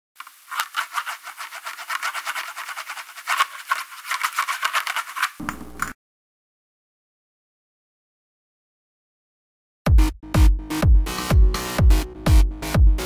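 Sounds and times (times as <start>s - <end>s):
pen scratching on paper: 0.5s - 5.5s.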